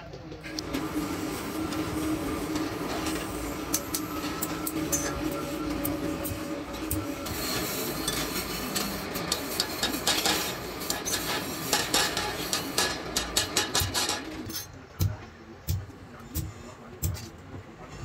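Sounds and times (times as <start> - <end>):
metal tools clinking and scraping: 2.6 - 5.6, 6.2 - 14.8.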